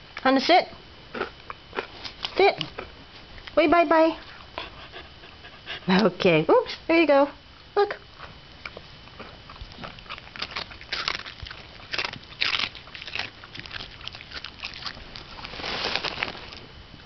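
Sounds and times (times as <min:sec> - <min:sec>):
dog crunching and chewing treat: 0:01.1 - 0:03.6, 0:08.2 - 0:16.7.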